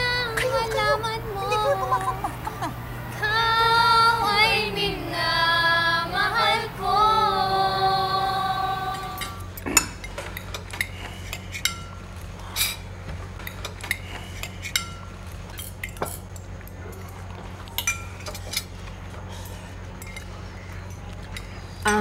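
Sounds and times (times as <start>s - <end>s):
cutlery clinking against plates: 20.0s - 20.3s.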